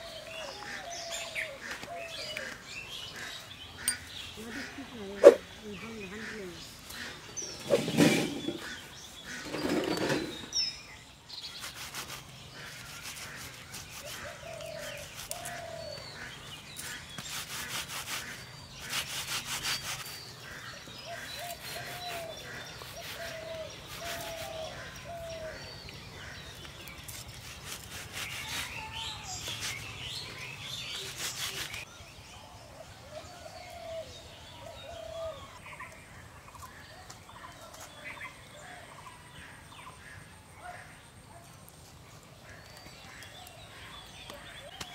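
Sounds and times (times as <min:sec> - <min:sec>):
small birds chirping: 0:00.0 - 0:44.9
rasping scraping bursts: 0:11.6 - 0:15.6, 0:16.8 - 0:20.6, 0:21.2 - 0:24.7, 0:27.0 - 0:30.0, 0:30.9 - 0:31.9.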